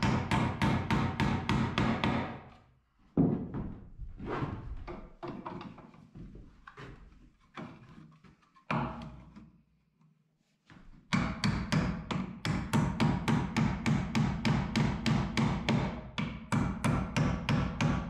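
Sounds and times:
hammer blows on nails: 0.0s - 2.4s.

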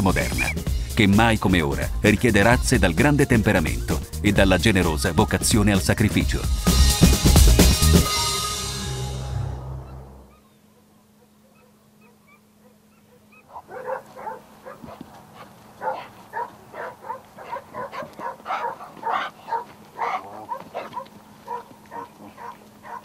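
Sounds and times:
dog yelping and barking: 10.3s - 23.0s.

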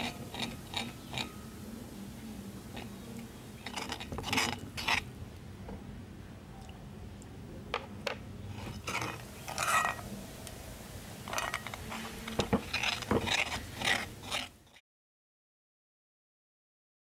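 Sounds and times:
spoon scraping dough in bowl: 0.0s - 1.4s, 3.6s - 5.1s, 8.5s - 10.1s, 11.2s - 14.8s.

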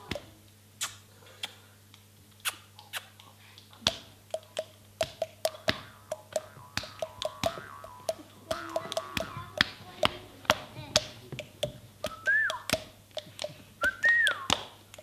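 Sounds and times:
sharp mouth clicks: 0.8s - 9.7s
pitched hollow mouth pops: 3.8s - 10.1s, 11.0s - 15.0s.

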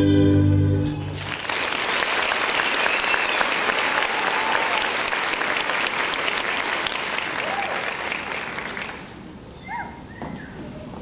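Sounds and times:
ballet music: 0.0s - 1.2s
audience applauding: 1.1s - 9.2s.

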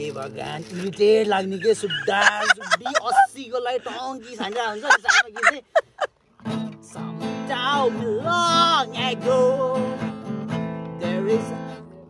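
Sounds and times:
man singing: 0.0s - 5.6s, 6.5s - 12.0s
acoustic guitar strumming: 6.3s - 12.0s.

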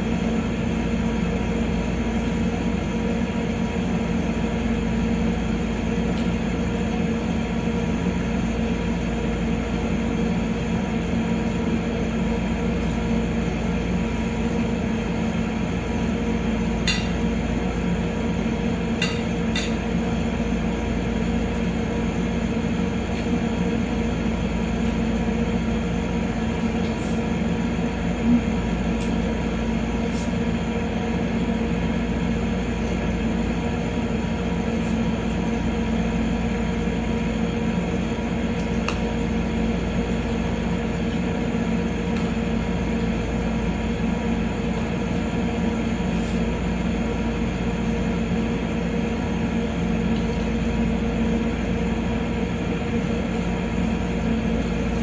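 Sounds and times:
steady mechanical hum: 0.0s - 55.0s.

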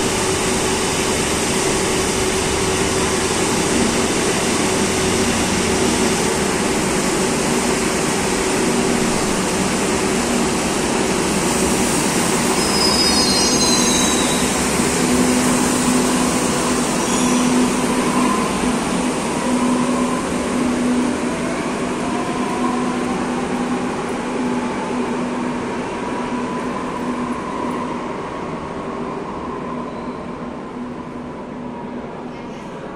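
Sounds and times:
train cars rumbling: 0.0s - 31.3s
wheel squeal: 12.5s - 14.6s, 17.0s - 17.6s.

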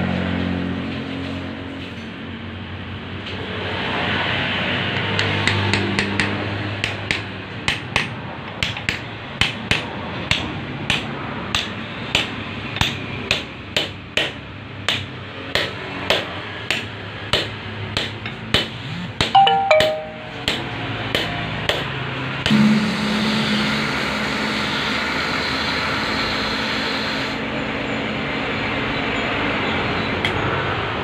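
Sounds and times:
hammer tapping metal: 4.9s - 22.8s.

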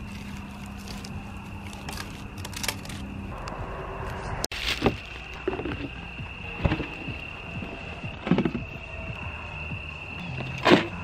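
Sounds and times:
campfire crackling: 0.0s - 8.1s.

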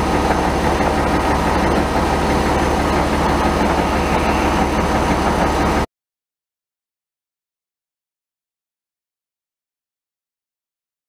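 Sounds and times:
tractor engine running: 0.0s - 5.9s.

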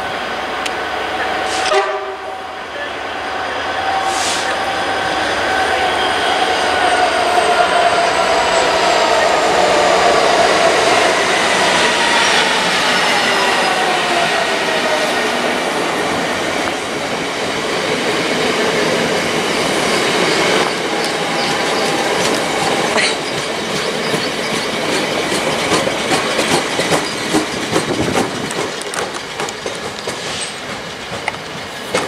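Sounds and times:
train wheels rumbling on rails: 0.0s - 32.0s
train wheels clicking over rail joints: 17.9s - 32.0s.

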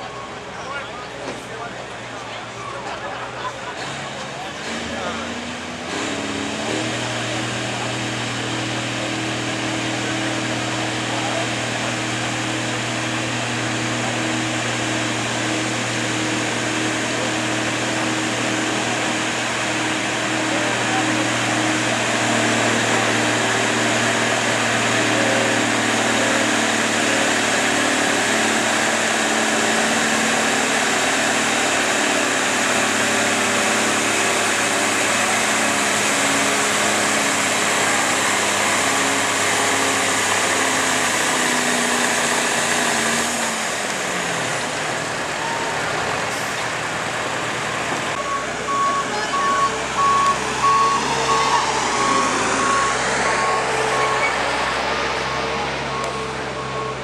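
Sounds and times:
tractor diesel engine straining: 0.0s - 57.0s
reversing beeper: 45.2s - 46.6s, 48.1s - 57.0s.

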